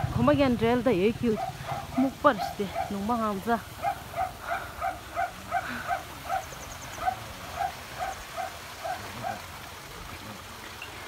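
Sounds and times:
dog barking: 0:01.3 - 0:03.2, 0:03.8 - 0:09.4.

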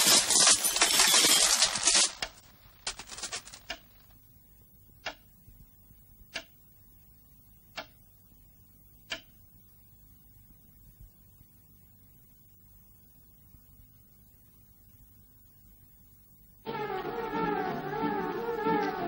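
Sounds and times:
clock-like ticks: 0:06.3 - 0:06.6, 0:09.1 - 0:09.3.

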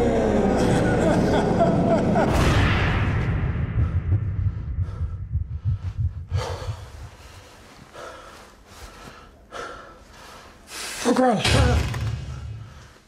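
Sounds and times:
low rumble: 0:00.0 - 0:07.9
person taking sharp breaths: 0:03.9 - 0:11.0.

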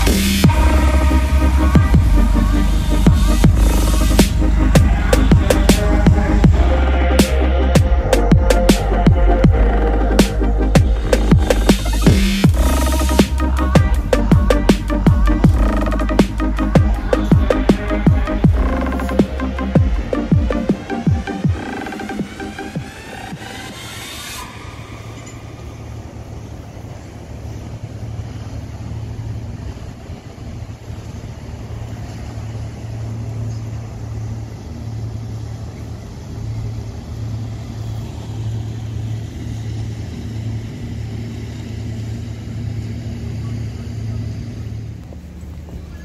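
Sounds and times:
road noise: 0:00.0 - 0:46.0
vehicle engine drone: 0:00.0 - 0:46.0.

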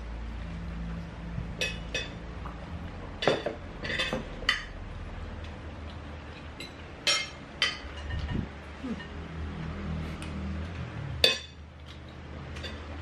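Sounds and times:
cutlery clinking on dishes: 0:03.2 - 0:04.8, 0:06.6 - 0:09.2, 0:11.2 - 0:12.9.

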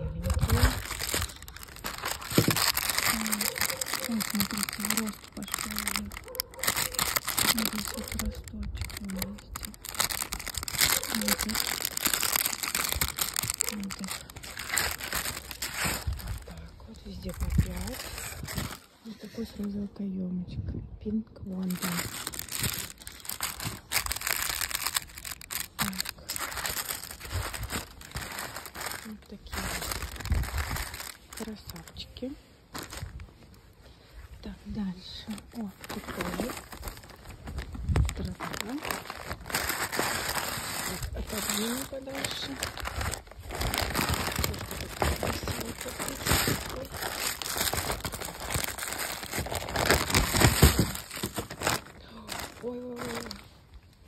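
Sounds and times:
plastic packaging crinkling: 0:00.0 - 0:19.8, 0:21.5 - 0:34.2, 0:34.8 - 0:54.0.

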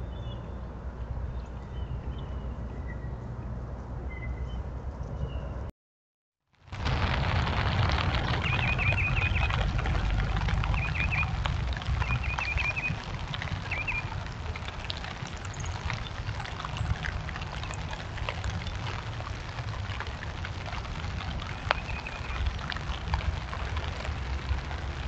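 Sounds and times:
faint bird chirp: 0:04.0 - 0:05.7, 0:10.7 - 0:11.3, 0:12.0 - 0:13.0
low outdoor rumble: 0:06.6 - 0:25.0.

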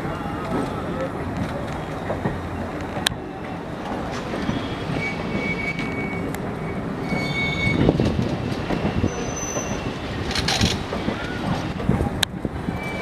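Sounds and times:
train wheels rumbling on rails: 0:00.0 - 0:13.0
high-pitched wheel squeals: 0:04.3 - 0:10.2, 0:12.7 - 0:13.0.

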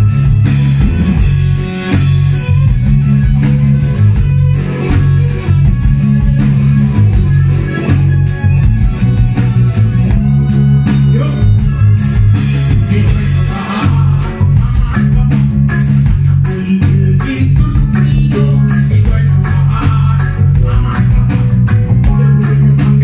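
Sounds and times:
drum kit: 0:00.0 - 0:23.0
electric guitar: 0:00.0 - 0:23.0
heavy bass line: 0:00.0 - 0:23.0
man singing: 0:10.8 - 0:11.7, 0:12.6 - 0:23.0.

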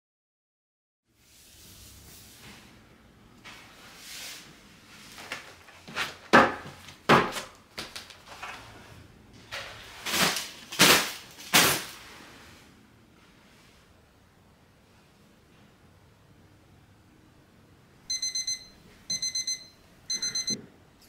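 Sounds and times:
broom sweeping wooden stairs: 0:01.2 - 0:06.8.

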